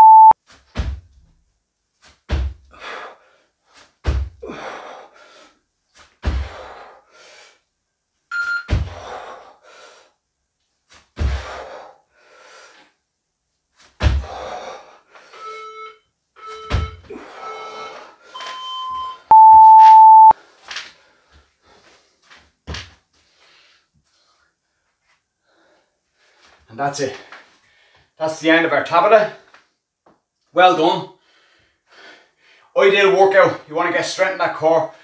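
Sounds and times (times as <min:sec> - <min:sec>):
workout timer beeps: 0:00.0 - 0:00.4, 0:08.3 - 0:08.8, 0:15.2 - 0:20.4.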